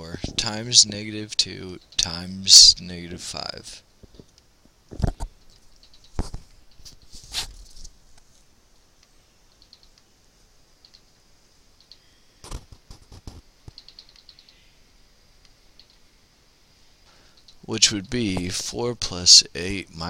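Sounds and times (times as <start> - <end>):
computer mouse clicking: 5.4 - 7.0, 9.0 - 10.1, 10.8 - 11.1, 11.8 - 12.6, 13.2 - 14.6, 15.4 - 16.0.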